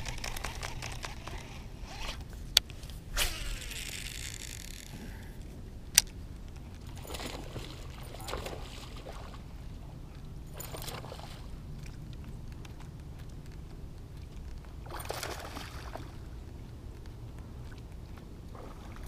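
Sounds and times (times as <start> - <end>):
low steady rumble: 0.0 - 19.0
water splashing: 6.8 - 9.9, 10.5 - 12.0, 14.8 - 16.4, 17.6 - 19.0.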